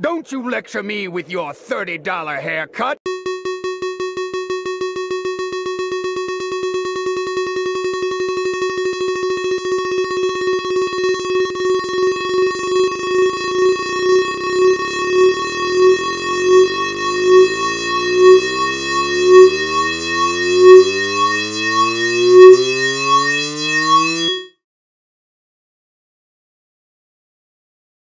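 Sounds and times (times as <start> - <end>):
steady buzzing tone: 3.1 - 24.5.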